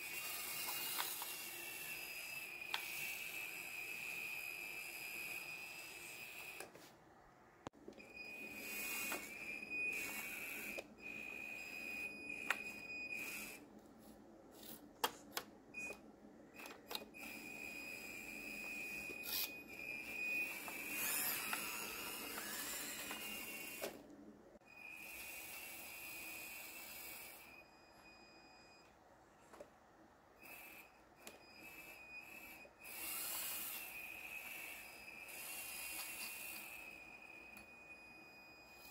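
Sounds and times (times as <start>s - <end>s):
small electric motors whining: 0.0s - 6.8s, 8.0s - 28.9s, 30.4s - 38.9s.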